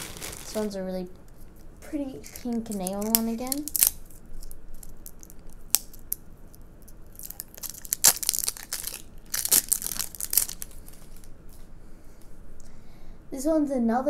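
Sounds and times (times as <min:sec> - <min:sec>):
plastic seal crinkling and tearing: 0:00.0 - 0:00.7, 0:02.2 - 0:11.3.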